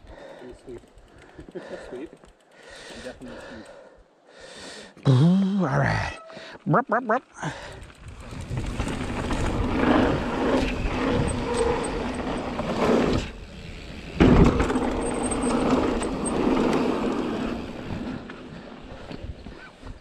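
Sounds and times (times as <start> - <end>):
bike tyres rolling on dirt: 7.5 - 20.0
bike rattling over ground: 7.7 - 20.0
loud bike jolt: 14.1 - 16.6.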